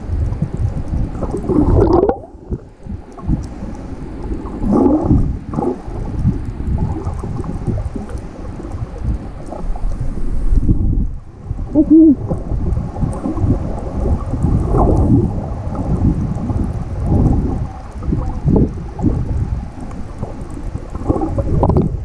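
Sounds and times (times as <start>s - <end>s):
underwater rumble and sloshing: 0.0s - 22.0s.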